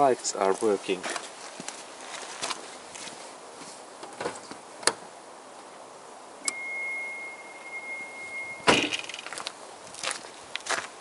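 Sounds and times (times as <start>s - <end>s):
car warning buzzer: 6.5s - 9.2s
loud clunk with rattling: 8.7s - 9.3s.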